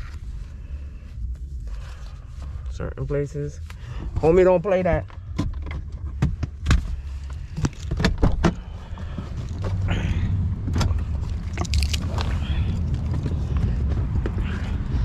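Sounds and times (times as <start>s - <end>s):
steady low rumble: 0.0s - 15.0s
knocks and clicks in a car: 4.0s - 9.8s.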